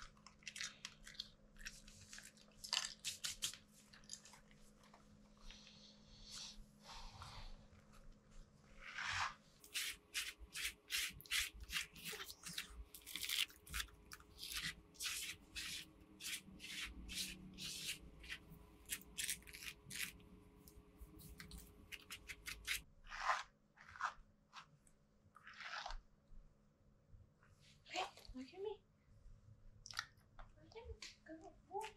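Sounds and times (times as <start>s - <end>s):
brush stroking through dog fur: 8.8s - 12.7s, 14.4s - 18.5s.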